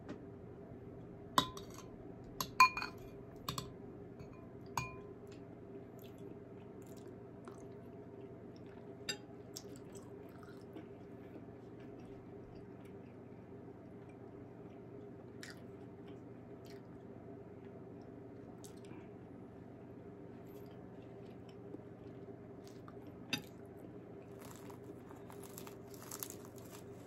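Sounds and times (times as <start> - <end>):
metal spoon clinking on bowl: 1.4 - 1.8, 2.4 - 5.0
faint chewing: 5.3 - 27.0.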